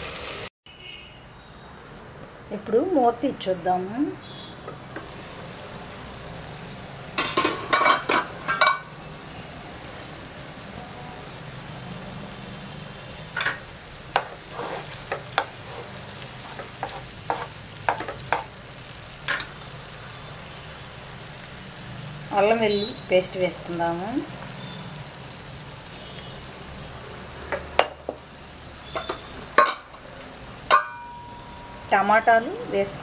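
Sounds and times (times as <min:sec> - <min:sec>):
spatula scraping and tapping pan: 0:07.2 - 0:08.8, 0:13.4 - 0:18.6, 0:28.9 - 0:29.9.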